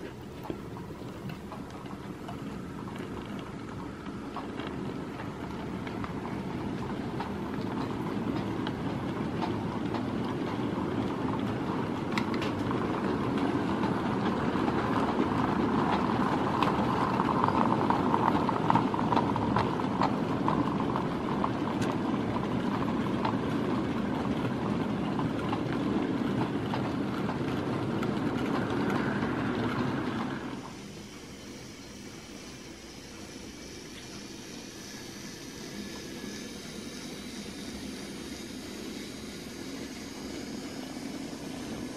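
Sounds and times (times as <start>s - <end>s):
wheel clicks on rails: 0.0s - 31.0s
model train wheels rumbling: 0.0s - 41.9s.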